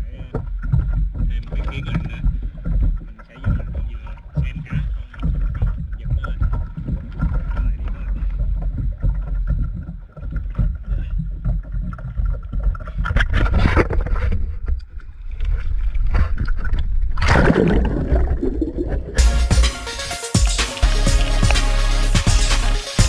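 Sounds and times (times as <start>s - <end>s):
wind and sea rumble: 0.0s - 21.6s
loud splash into water: 17.2s - 19.8s
rush of bubbles: 17.2s - 22.7s.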